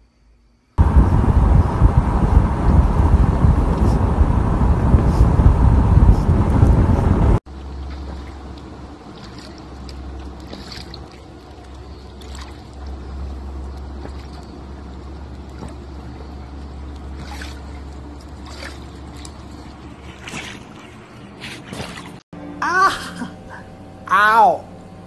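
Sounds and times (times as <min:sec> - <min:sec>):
low rumble: 0:00.8 - 0:21.3
short rustling: 0:01.7 - 0:22.2
water sloshing: 0:07.4 - 0:22.2.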